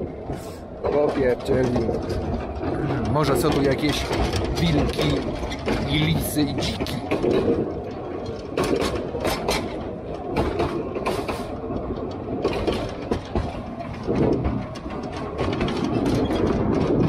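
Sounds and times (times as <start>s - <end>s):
train rumbling along track: 0.0s - 17.0s
wheels clicking and knocking: 0.0s - 17.0s.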